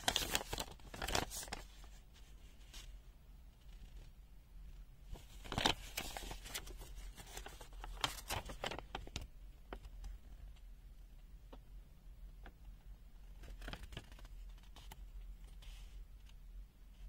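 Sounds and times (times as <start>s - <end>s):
paper sheet rustling: 0.0s - 3.0s, 5.1s - 10.2s.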